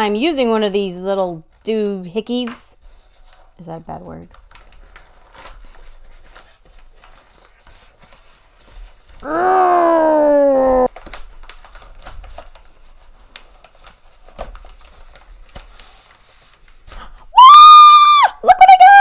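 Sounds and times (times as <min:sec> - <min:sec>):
paper mailer crinkling and tearing: 0:04.3 - 0:09.0, 0:10.9 - 0:17.0.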